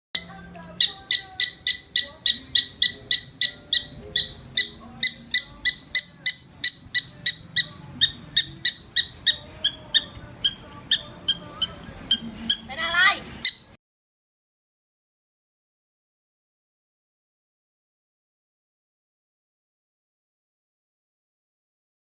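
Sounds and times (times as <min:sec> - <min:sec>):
prairie dog chirping barks: 0:00.2 - 0:12.7.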